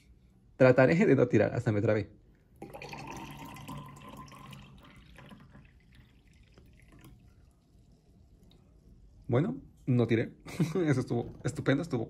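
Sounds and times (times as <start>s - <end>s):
liquid pouring into a glass: 2.5s - 8.8s.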